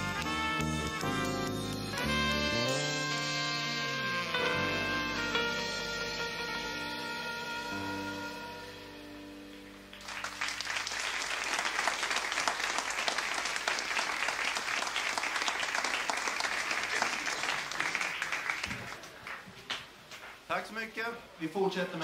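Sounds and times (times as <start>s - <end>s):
jazz band chord: 0.0s - 10.4s
audience applause: 9.6s - 19.8s.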